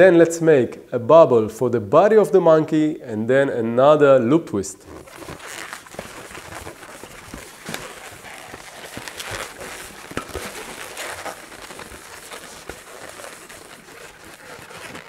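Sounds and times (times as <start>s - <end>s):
rubber balloon creaking: 4.8s - 15.0s.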